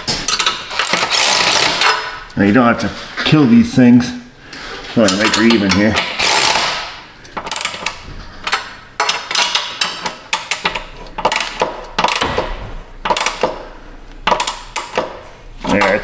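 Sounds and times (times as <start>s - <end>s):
wrench metal clicks: 7.3s - 12.3s, 14.2s - 15.1s.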